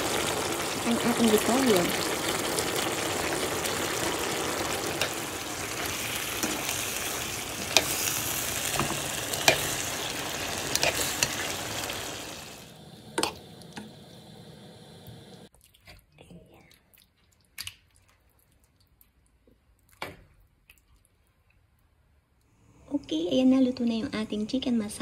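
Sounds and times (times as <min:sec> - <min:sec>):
food sizzling in a frying pan: 0:00.0 - 0:15.5.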